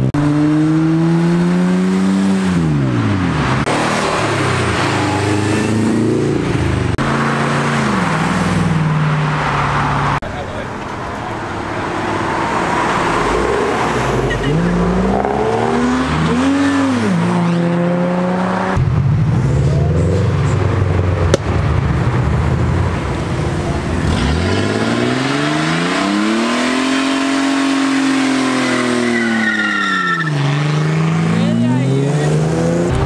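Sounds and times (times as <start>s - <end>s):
car engine revving: 0.0s - 33.0s
exhaust crack: 18.7s - 24.9s
tyre squeal: 28.5s - 30.4s.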